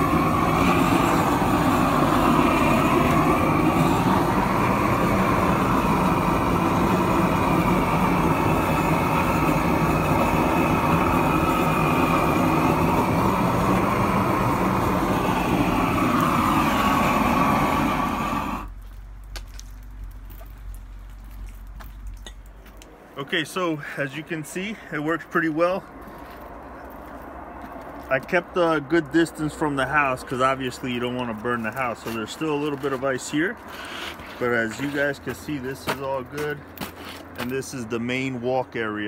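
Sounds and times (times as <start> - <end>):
roofing torch flame roaring: 0.0 - 27.4, 28.0 - 36.4.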